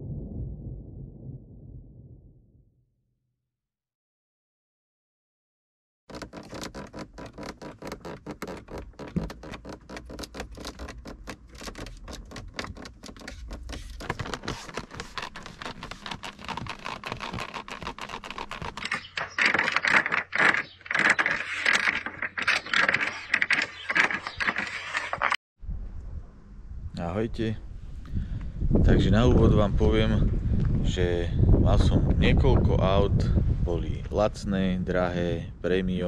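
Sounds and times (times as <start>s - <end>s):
plastic trim creaking: 6.1s - 25.4s.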